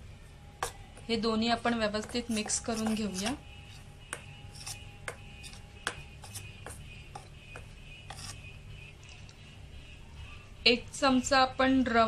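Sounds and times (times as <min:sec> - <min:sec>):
metal spoon scraping steel bowl: 0:01.6 - 0:08.6.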